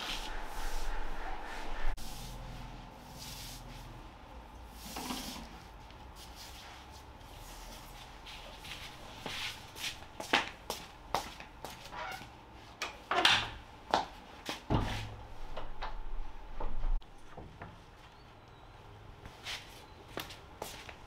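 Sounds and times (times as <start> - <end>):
footsteps in slippers on tiles: 5.9 - 12.4, 19.2 - 21.0.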